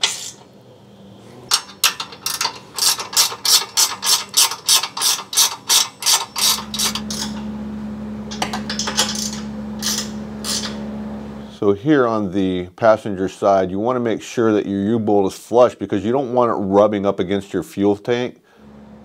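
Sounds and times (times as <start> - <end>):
steady low hum: 6.2 - 11.6, 18.6 - 19.0.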